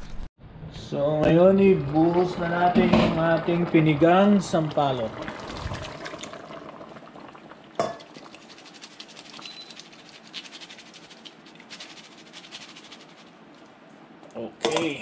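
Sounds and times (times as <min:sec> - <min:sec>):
broth bubbling: 0:01.4 - 0:11.5
juice dripping from strainer: 0:04.4 - 0:14.0.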